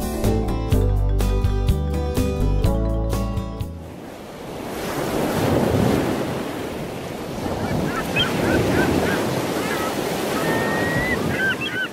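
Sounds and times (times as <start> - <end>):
ocean surf washing in: 3.7 - 11.9
birds chirping: 7.5 - 11.9.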